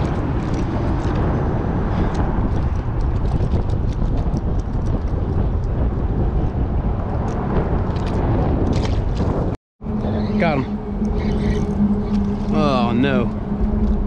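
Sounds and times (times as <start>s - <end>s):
wind buffeting microphone: 0.0s - 14.0s.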